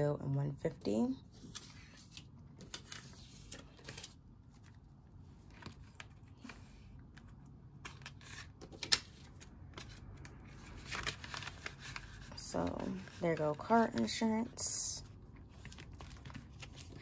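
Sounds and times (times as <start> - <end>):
paper and plastic rustling: 1.3 - 17.0.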